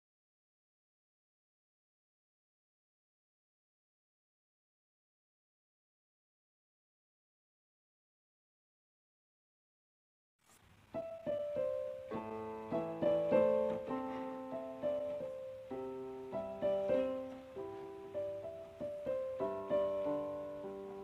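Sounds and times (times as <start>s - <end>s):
slow piano music: 10.9s - 21.0s.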